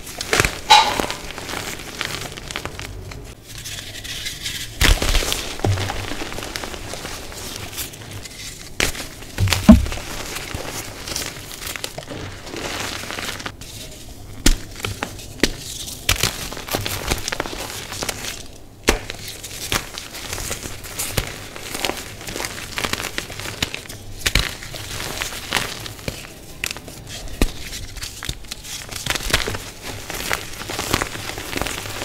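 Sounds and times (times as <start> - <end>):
heavy thump: 9.4 - 10.1.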